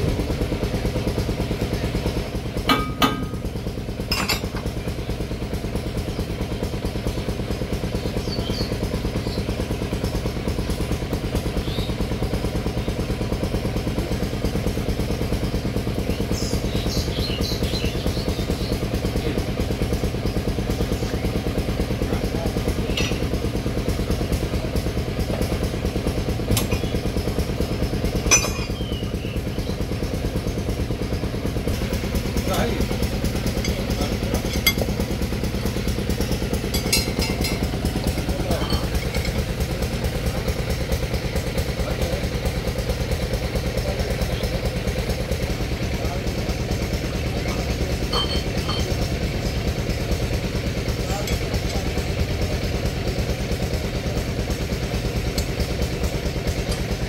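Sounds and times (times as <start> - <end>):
engine running steadily: 0.0 - 57.0
sharp metal clinks: 28.3 - 28.8.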